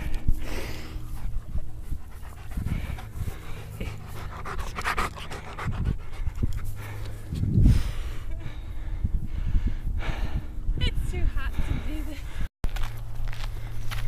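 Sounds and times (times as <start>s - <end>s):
dog panting: 0.0s - 7.3s.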